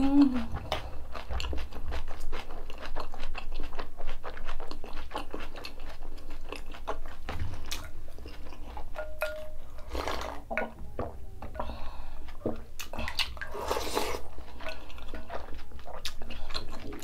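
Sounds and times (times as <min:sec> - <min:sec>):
crisp wet chewing: 0:00.0 - 0:09.0, 0:12.3 - 0:17.0
bowl clinking: 0:08.9 - 0:12.7.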